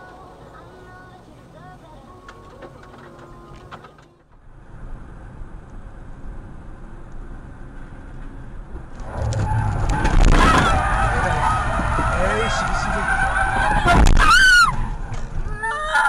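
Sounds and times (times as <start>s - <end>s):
car engine and tyre hum: 0.0s - 16.0s
sudden loud noise: 8.8s - 15.5s.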